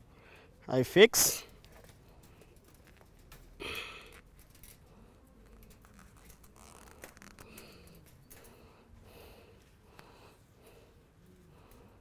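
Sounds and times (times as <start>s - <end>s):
wire mesh rustling and ticking: 1.3s - 8.8s.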